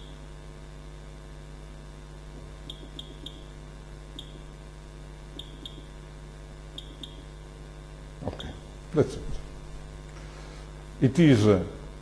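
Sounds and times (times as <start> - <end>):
steady low hum: 0.0 - 12.0
short high keypad beeps: 2.7 - 3.5, 5.4 - 5.8, 6.8 - 7.2.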